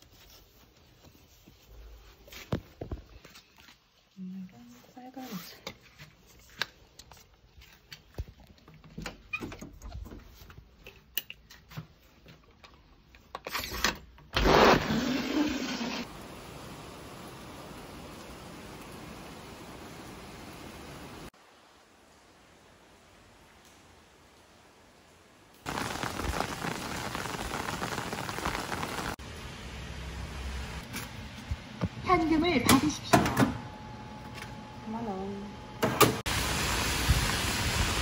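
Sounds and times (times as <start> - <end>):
steady hiss: 15.3 - 29.7.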